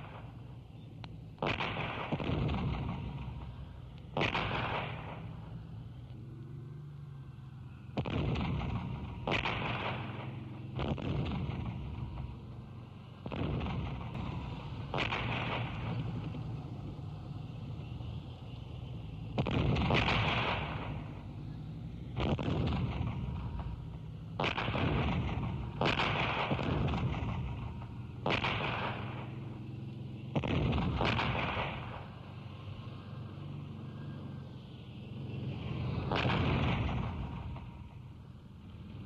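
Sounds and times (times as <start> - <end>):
steady low rumble: 0.0 - 29.5
artillery booms: 1.4 - 5.5, 7.9 - 12.5, 13.2 - 16.4, 19.3 - 21.3, 22.1 - 29.4, 30.3 - 32.2, 36.0 - 38.2.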